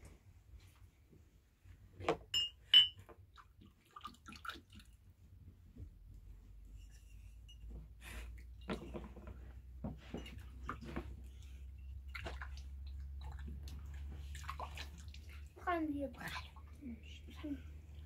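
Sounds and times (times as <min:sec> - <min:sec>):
glasses clinking: 0:02.3 - 0:03.0, 0:07.4 - 0:07.7.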